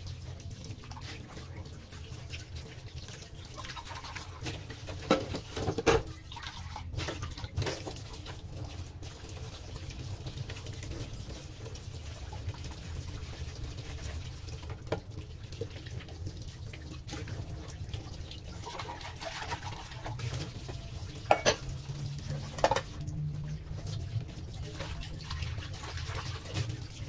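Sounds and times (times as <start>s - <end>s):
dishes clinking and knocking: 21.2s - 21.7s, 22.5s - 23.0s.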